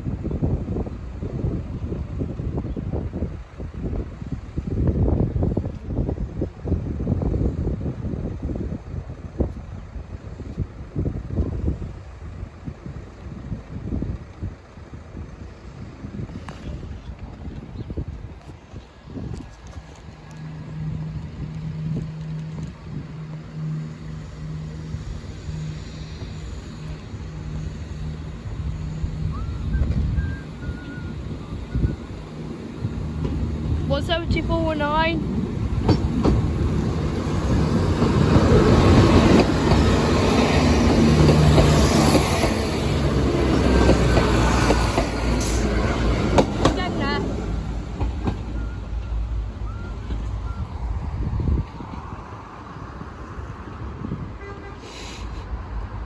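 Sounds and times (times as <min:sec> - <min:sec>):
low engine hum: 0:00.0 - 0:56.0
train wheels rumbling on rails: 0:00.0 - 0:56.0
wind buffeting microphone: 0:00.0 - 0:56.0.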